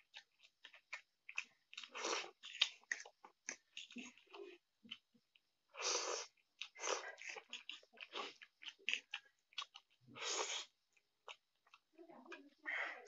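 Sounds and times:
chewing smacks and clicks: 0:00.0 - 0:05.5, 0:06.1 - 0:12.6
person slurping noodles: 0:01.8 - 0:02.8, 0:05.7 - 0:09.1, 0:10.1 - 0:10.8.

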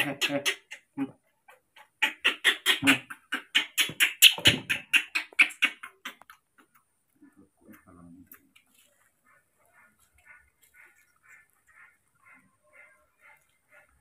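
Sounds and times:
baby monkey squeaking: 0:02.0 - 0:06.2.

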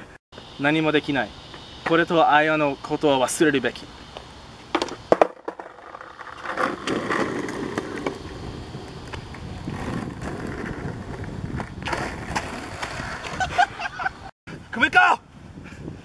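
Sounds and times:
skateboard wheels rumbling on concrete: 0:04.6 - 0:14.3
skateboard clicks and knocks: 0:04.7 - 0:13.5.

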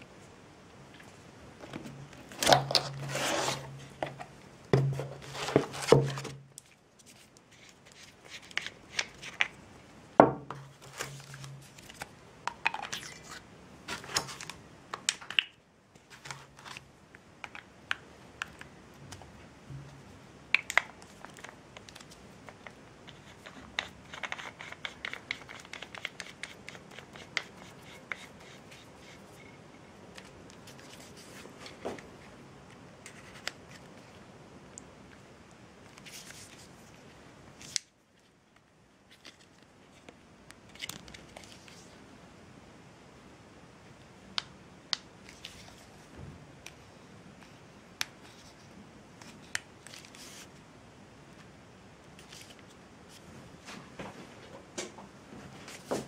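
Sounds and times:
cardboard scraping and rubbing: 0:02.3 - 0:06.4.

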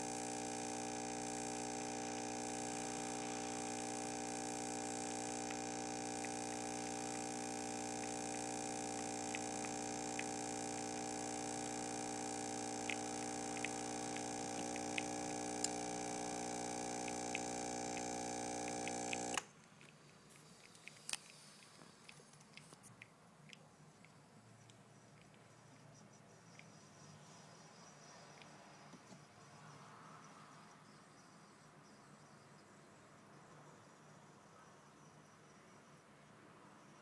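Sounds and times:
espresso machine pump humming: 0:00.0 - 0:19.5.

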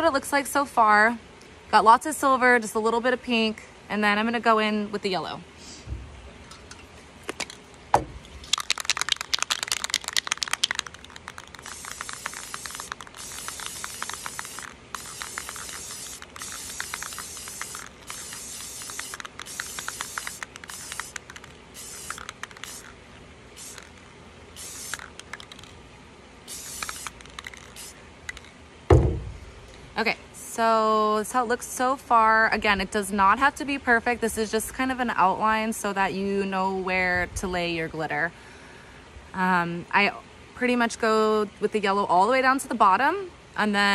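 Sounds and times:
aerosol can rattling: 0:08.4 - 0:23.0, 0:23.6 - 0:25.8, 0:26.5 - 0:28.5
spray paint hissing: 0:08.4 - 0:25.8, 0:26.5 - 0:28.5.

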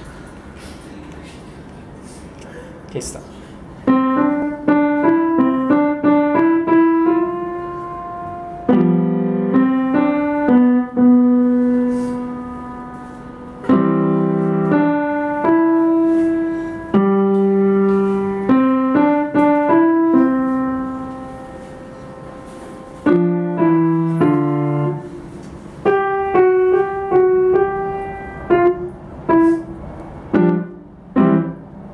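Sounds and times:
upright piano playing: 0:03.8 - 0:31.9.

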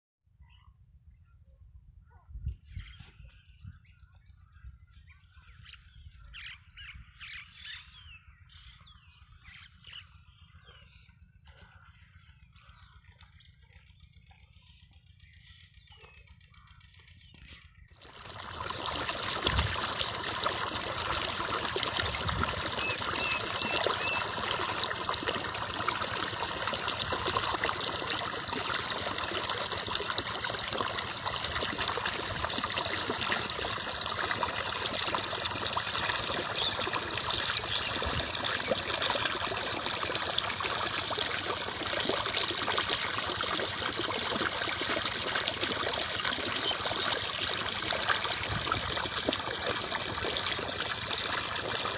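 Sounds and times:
water running and trickling: 0:18.0 - 0:51.9.

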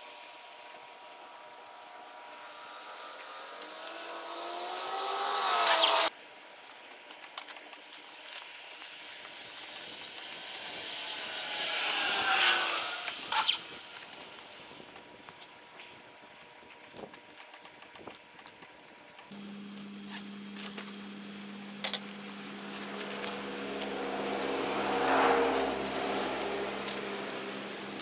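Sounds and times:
vehicles passing by: 0:00.4 - 0:06.1, 0:08.8 - 0:15.2, 0:19.3 - 0:28.0.

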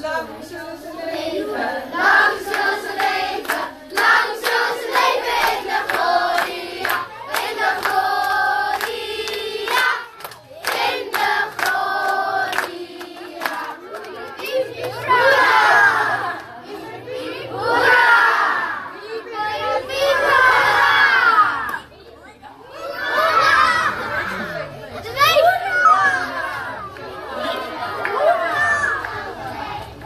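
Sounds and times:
children singing: 0:01.3 - 0:18.8
hand clapping: 0:02.5 - 0:04.6, 0:05.4 - 0:15.0.

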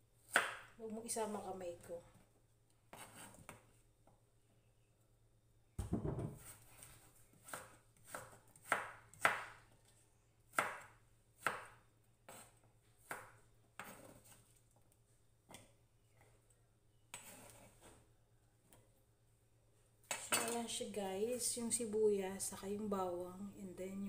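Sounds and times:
knife chopping on wooden board: 0:07.4 - 0:09.6, 0:10.5 - 0:14.4.

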